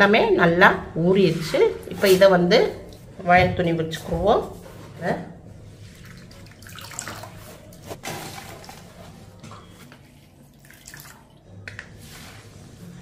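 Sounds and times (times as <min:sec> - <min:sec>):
water splashing and dripping: 0:05.9 - 0:08.9, 0:10.5 - 0:11.5.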